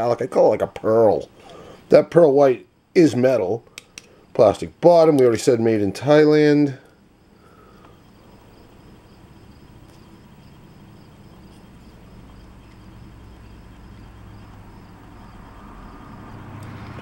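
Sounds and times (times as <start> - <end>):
low hum and hiss: 0.0 - 17.0.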